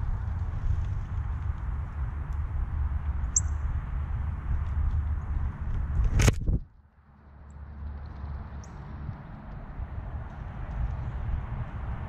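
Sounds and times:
wind buffeting microphone: 0.0s - 6.7s, 8.4s - 12.0s
small bird chirping: 3.3s - 3.6s.

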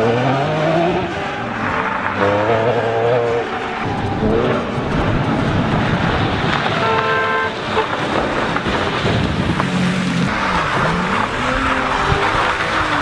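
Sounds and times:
car engine driven hard: 0.0s - 13.0s
tyre spray and gravel hiss: 3.5s - 13.0s.

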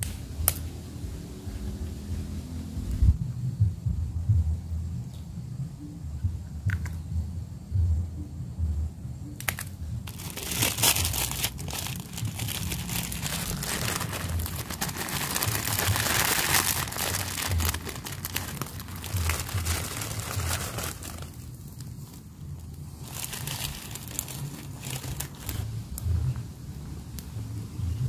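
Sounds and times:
low rumble: 0.3s - 5.0s, 9.9s - 21.7s
noodles crackling into a pot: 9.4s - 26.0s
plastic packet crinkling: 9.5s - 22.2s, 22.9s - 25.7s.

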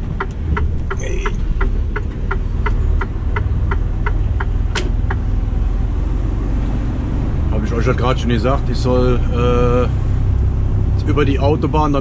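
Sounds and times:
turn indicator ticking: 0.0s - 5.7s
diesel engine running: 0.0s - 12.0s.

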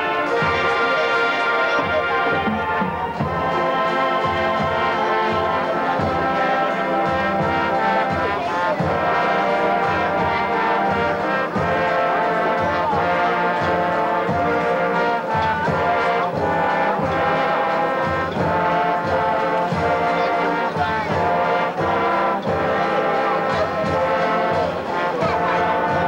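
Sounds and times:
marching band playing: 0.0s - 26.0s
trombone solo: 0.0s - 26.0s.

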